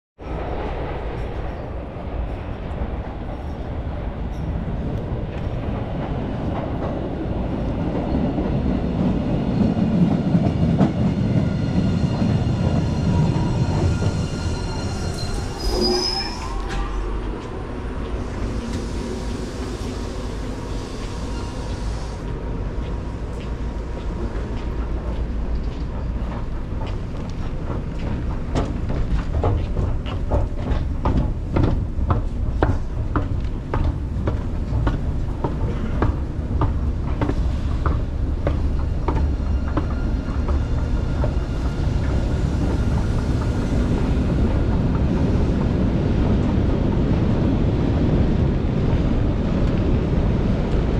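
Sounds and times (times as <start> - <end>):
subway train rumble and wheel whine: 0.2 - 50.9
brake squeal: 13.1 - 17.1, 20.7 - 22.2
train air hiss: 18.1 - 22.3.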